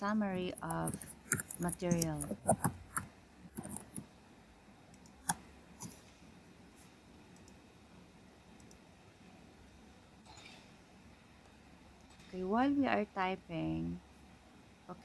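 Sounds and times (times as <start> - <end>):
computer keyboard and mouse clicks: 0.5 - 4.1, 5.0 - 6.0.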